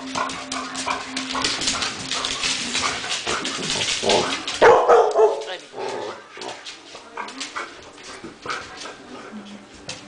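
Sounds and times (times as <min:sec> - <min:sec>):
small dogs barking: 0:04.1 - 0:05.6.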